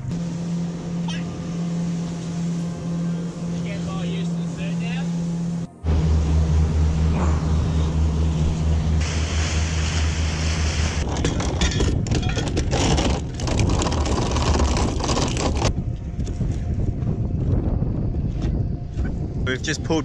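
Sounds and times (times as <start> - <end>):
wind and water rushing: 0.0 - 11.2
boat motor humming: 0.0 - 19.4.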